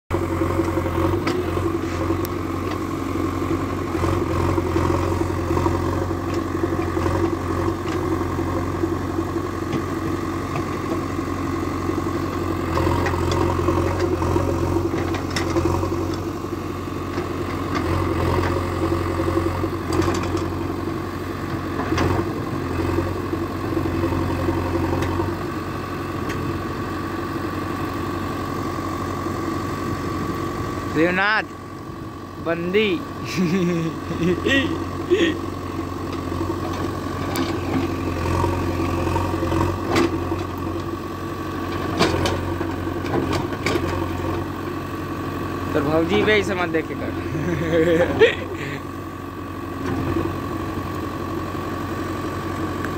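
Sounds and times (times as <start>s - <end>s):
diesel engine running: 0.1s - 52.9s
digging knocks and clatter: 41.7s - 44.4s.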